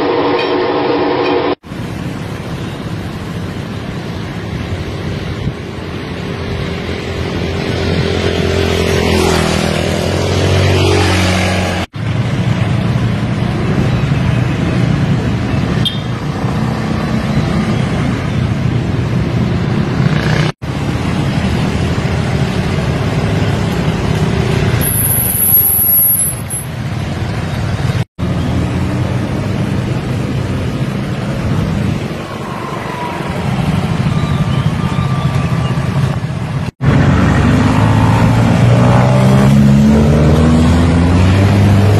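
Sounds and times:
car engines passing: 0.0 - 41.9.

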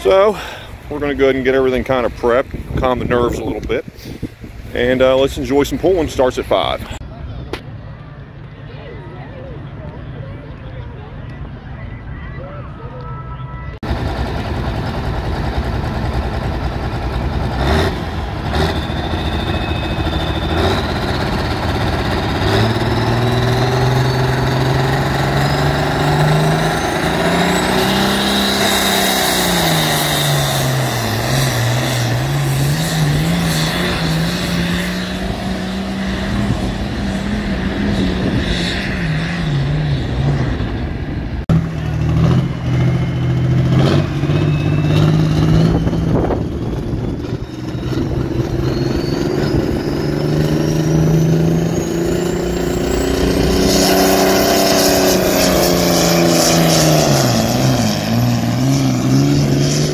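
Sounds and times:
tractor engine running steadily: 13.8 - 26.1
tractor engine revving under load: 16.9 - 40.6, 41.4 - 59.9
turbo whistle: 18.2 - 21.9, 44.2 - 57.3.

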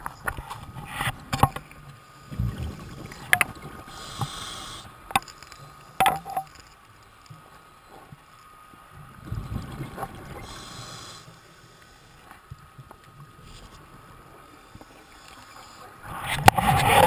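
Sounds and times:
regulator breathing underwater: 3.8 - 5.1, 10.4 - 12.1.

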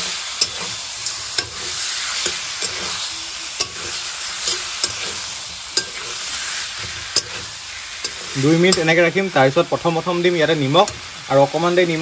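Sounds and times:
metal spatula scraping pan: 0.0 - 9.1
meat sizzling in oil: 0.0 - 12.0
spatula clicking on pan: 0.4 - 2.9, 3.6 - 6.2, 6.8 - 7.4.

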